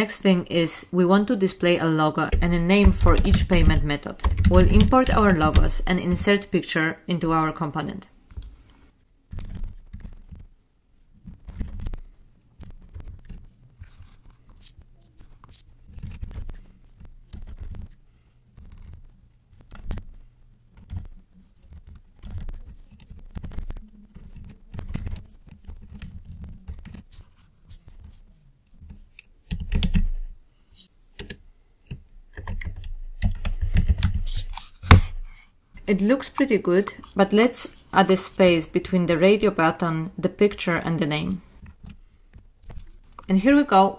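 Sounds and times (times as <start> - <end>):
typing on computer keyboard: 2.4 - 6.3, 19.6 - 27.0, 29.5 - 30.2.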